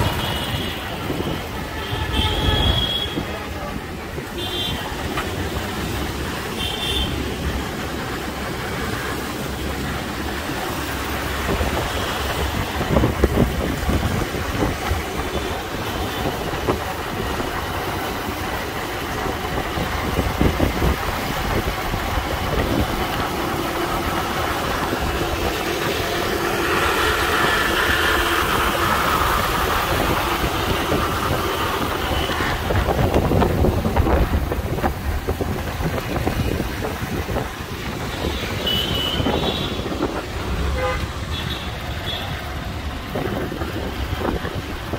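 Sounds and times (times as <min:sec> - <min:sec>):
vehicle horn toot: 0:00.0 - 0:03.3, 0:38.4 - 0:39.9, 0:40.7 - 0:42.3
road and wind noise: 0:00.0 - 0:44.9.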